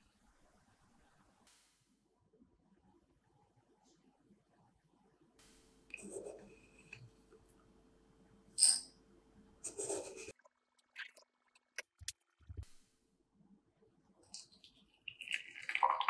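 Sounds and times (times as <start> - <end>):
spoon scooping coffee granules: 5.9 - 7.0
spoon clinking glass jar: 8.6 - 8.9.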